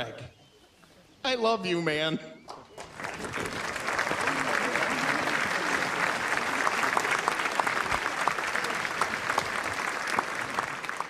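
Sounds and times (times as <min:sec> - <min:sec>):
crowd applauding: 0:02.5 - 0:11.0.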